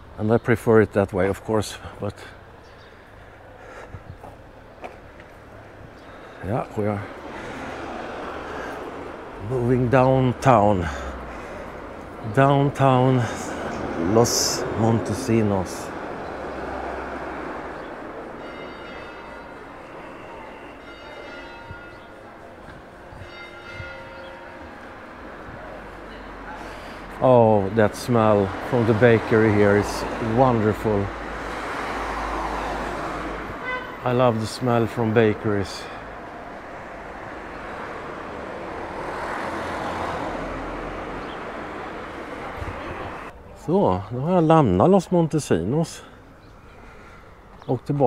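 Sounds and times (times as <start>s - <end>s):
vehicle passing: 3.0s - 43.4s
bells ringing: 18.3s - 25.2s.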